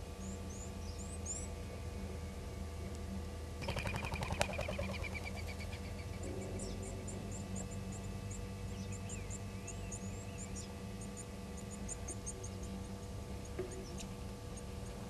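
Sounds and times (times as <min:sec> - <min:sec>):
small birds chirping: 0:00.0 - 0:01.7, 0:03.6 - 0:15.0
low hum: 0:00.0 - 0:15.0
high bird twittering: 0:03.6 - 0:11.2.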